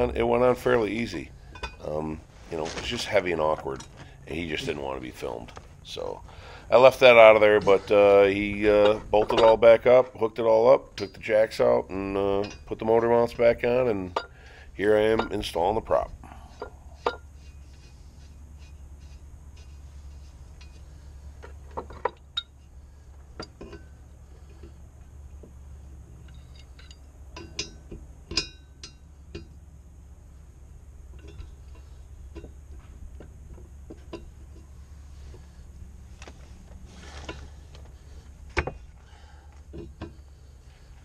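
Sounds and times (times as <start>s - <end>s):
steady low hum: 0.0s - 41.0s
metal tools clinking on propeller: 0.5s - 5.3s, 10.6s - 17.3s, 26.2s - 29.6s, 31.2s - 32.6s.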